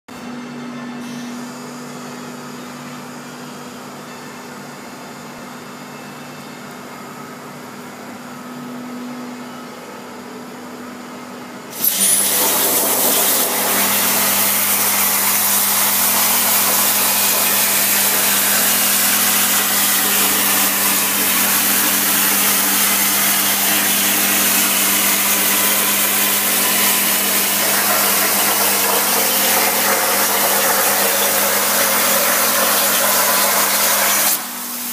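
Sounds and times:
plasma arc hissing: 0:11.7 - 0:34.9.

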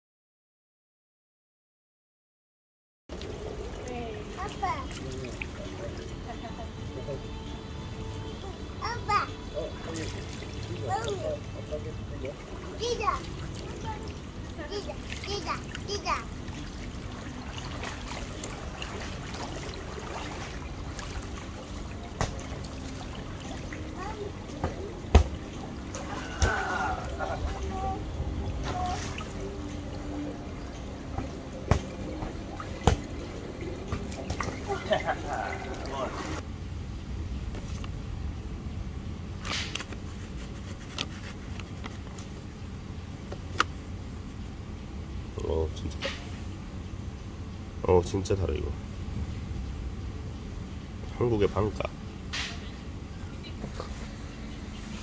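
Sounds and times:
pool water sloshing and splashing: 0:03.1 - 0:06.5, 0:09.6 - 0:36.5
steady low rumble: 0:03.1 - 0:40.2, 0:41.4 - 0:55.0
sharp slap on water: 0:22.2 - 0:22.5, 0:24.6 - 0:26.6, 0:31.6 - 0:32.0, 0:32.8 - 0:33.1.

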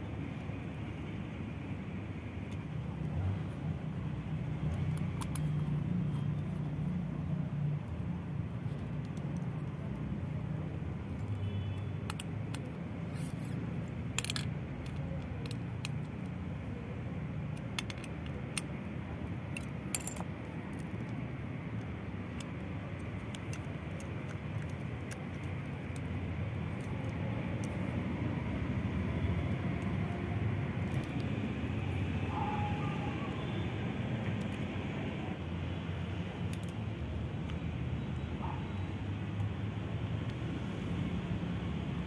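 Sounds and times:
small metallic clicks and taps: 0:04.6 - 0:06.8, 0:08.7 - 0:10.1, 0:11.1 - 0:12.9, 0:13.9 - 0:16.5, 0:17.3 - 0:28.0, 0:36.4 - 0:37.6.

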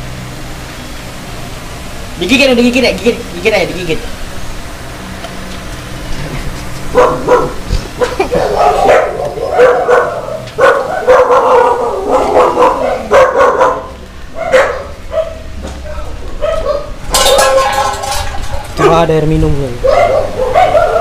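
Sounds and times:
dogs barking and yelping: 0:06.1 - 0:21.0.

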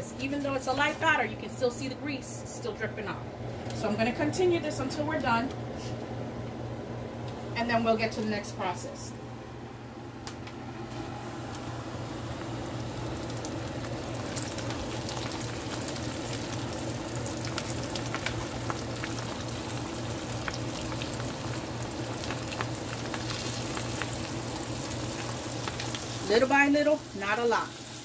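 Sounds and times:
steady low hum: 0:00.0 - 0:28.0
deep-frying oil sizzling: 0:10.9 - 0:28.0.

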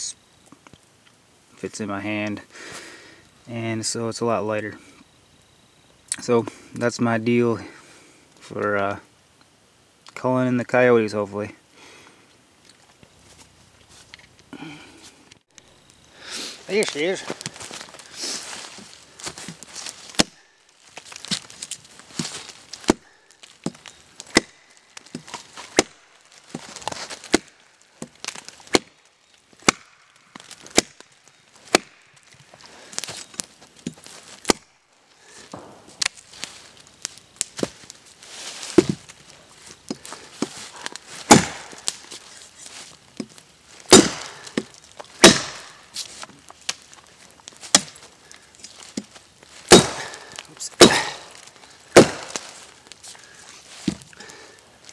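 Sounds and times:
rustling: 0:11.8 - 0:54.9
blade chopping log: 0:19.2 - 0:20.4, 0:23.6 - 0:28.9, 0:29.6 - 0:31.0, 0:31.7 - 0:32.0, 0:38.7 - 0:39.0, 0:41.2 - 0:42.0, 0:43.9 - 0:45.8, 0:49.7 - 0:51.3, 0:51.9 - 0:52.5.

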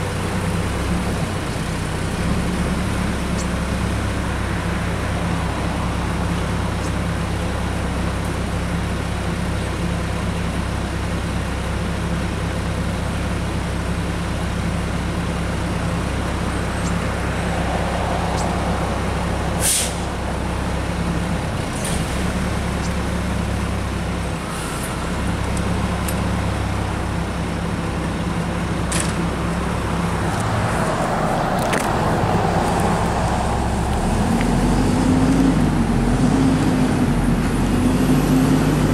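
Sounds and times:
garbage truck diesel engine idling: 0:05.2 - 0:17.2, 0:18.7 - 0:30.3
short air hisses: 0:19.6 - 0:20.1.

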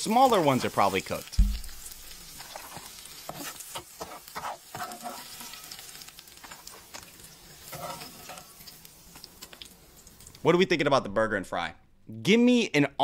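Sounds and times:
food sizzling in a pan: 0:00.0 - 0:10.6
utensil scraping a pan: 0:01.6 - 0:05.8, 0:07.6 - 0:08.6.

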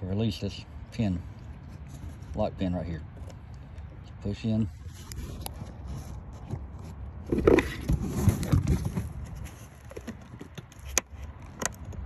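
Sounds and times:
metal pick scraping plastic: 0:04.9 - 0:12.0.

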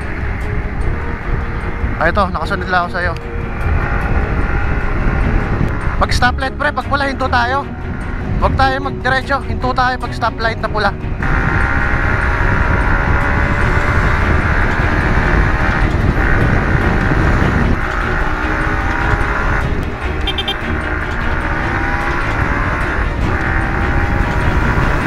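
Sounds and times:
wind on microphone: 0:00.0 - 0:06.6, 0:11.0 - 0:25.0
motorcycle engine revving: 0:00.0 - 0:25.0
high beeping: 0:11.2 - 0:23.2.

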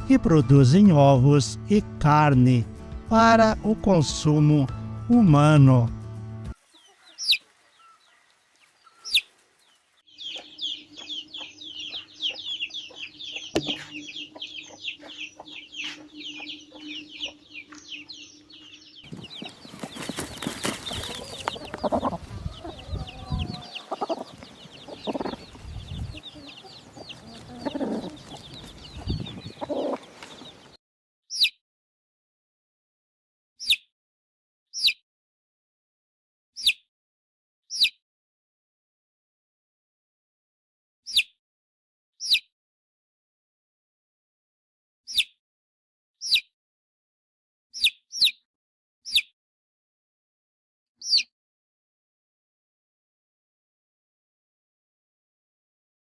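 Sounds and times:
hen clucking: 0:06.7 - 0:08.2, 0:08.8 - 0:09.3, 0:10.1 - 0:30.8
chicks peeping: 0:06.7 - 0:30.8, 0:42.2 - 0:42.4, 0:51.0 - 0:51.3
rustling: 0:19.2 - 0:21.9.

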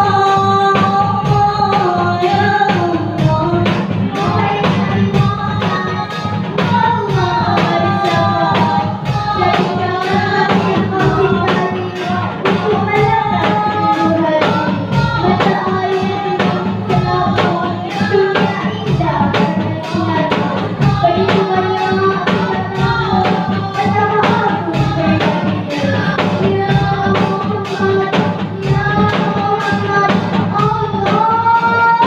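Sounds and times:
frame drums and bass drum beat: 0:00.0 - 0:32.0
girl singing into a microphone: 0:00.0 - 0:32.0.

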